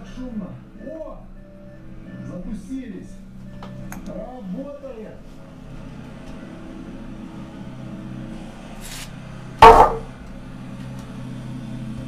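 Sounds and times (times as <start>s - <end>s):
car engine idling: 4.9s - 12.0s.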